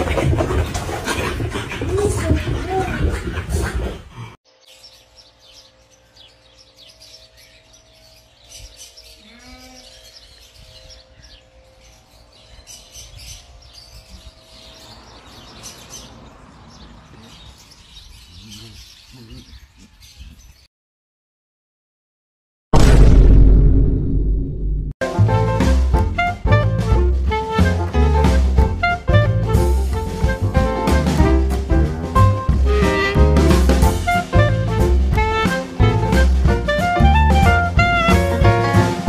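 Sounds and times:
small birds chirping: 1.4s - 20.7s.

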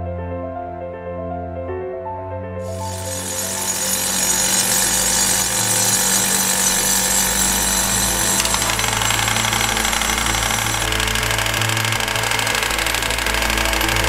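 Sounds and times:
soft piano music: 0.0s - 2.7s
hammer drill rattling: 2.6s - 14.0s
hydraulic breaker hammering: 2.6s - 14.0s.

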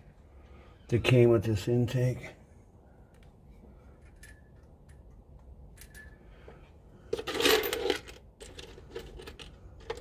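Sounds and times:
metal washers clicking: 4.0s - 6.2s
loose hardware jingling: 4.0s - 6.4s.

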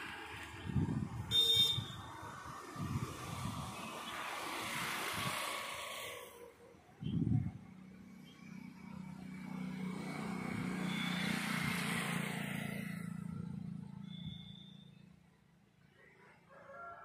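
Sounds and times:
vehicle engine passing by: 2.3s - 6.6s, 7.2s - 14.6s.

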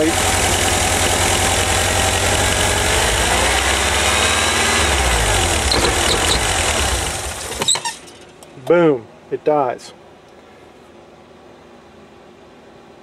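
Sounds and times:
van engine idling and wavering: 0.0s - 8.4s.

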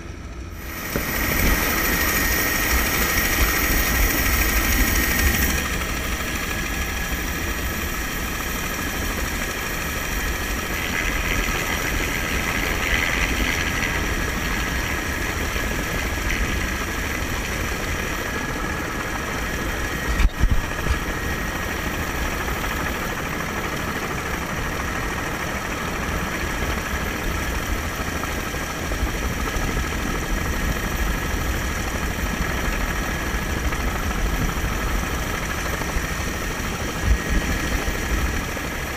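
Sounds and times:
helicopter rotor rumble: 0.0s - 38.9s
helicopter turbine whine: 0.0s - 38.9s.

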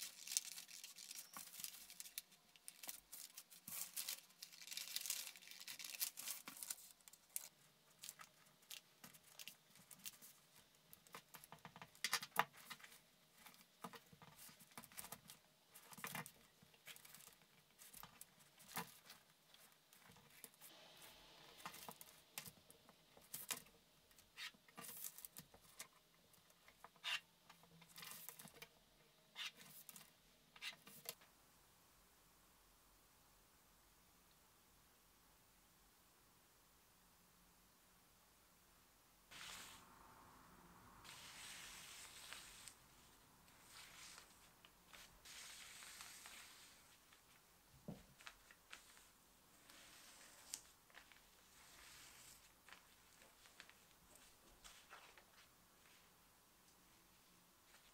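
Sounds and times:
paper rustling: 0.0s - 20.6s, 43.5s - 47.4s, 48.0s - 56.0s.

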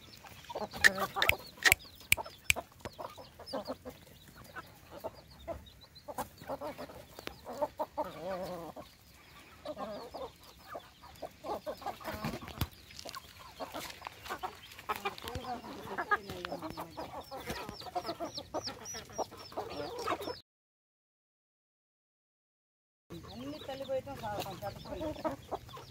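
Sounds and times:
hens clucking: 0.2s - 20.4s, 23.1s - 25.9s
quick high peeps: 0.8s - 2.6s.

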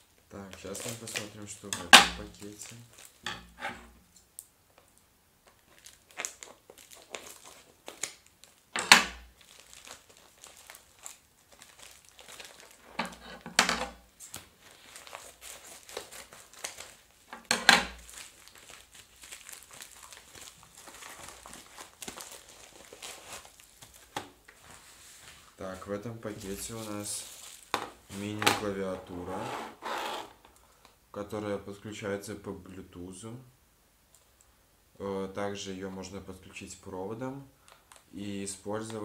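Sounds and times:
plastic mailer crinkling: 0.4s - 3.2s, 5.5s - 24.7s, 26.3s - 29.2s.

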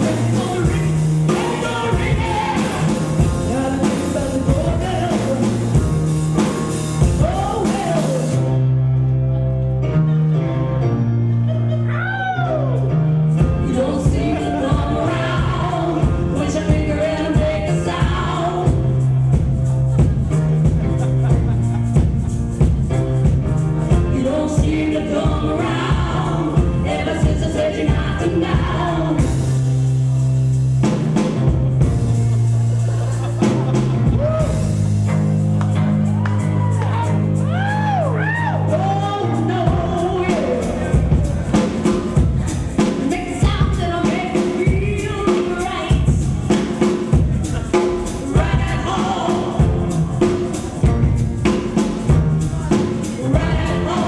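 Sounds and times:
singers singing: 0.0s - 5.8s, 13.6s - 19.0s, 23.9s - 29.6s, 42.5s - 51.0s, 52.5s - 54.0s
drum kit: 0.0s - 8.7s, 12.1s - 54.0s
live band playing: 0.0s - 54.0s.

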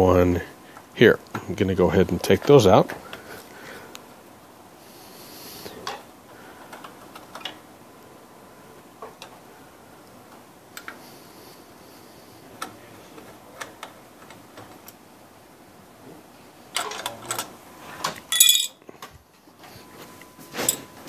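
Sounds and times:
metal clatter: 18.3s - 18.8s
ringing metal clink: 18.3s - 18.8s.

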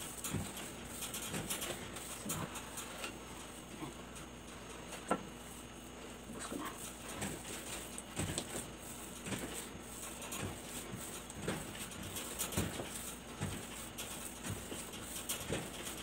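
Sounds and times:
dough kneaded on wooden table: 0.0s - 16.0s.

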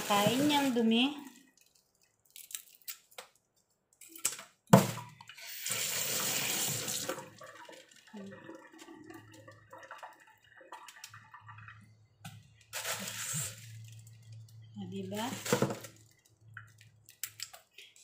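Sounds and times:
faucet running: 5.2s - 11.9s.

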